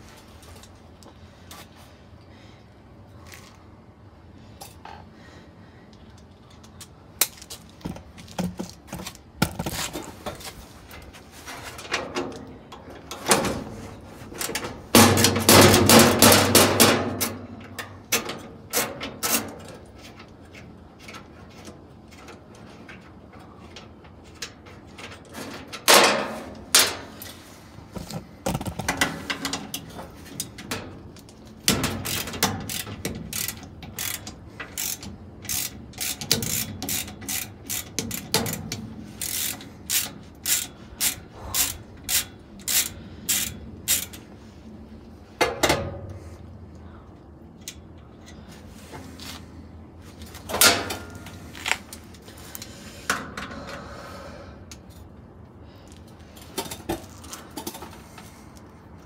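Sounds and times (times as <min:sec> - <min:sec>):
ratchet wrench clicking: 0:31.8 - 0:44.2.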